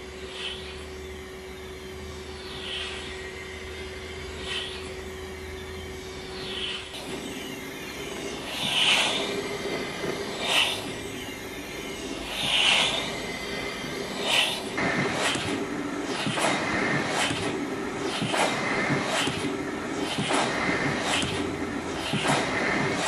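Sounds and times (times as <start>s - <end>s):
steady hum: 0.0s - 23.0s
steam engine rushing hiss: 6.4s - 23.0s.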